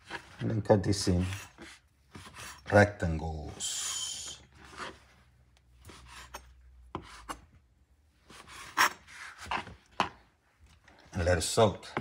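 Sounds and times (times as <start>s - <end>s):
knife cutting bread on board: 5.9s - 7.5s, 8.3s - 10.2s.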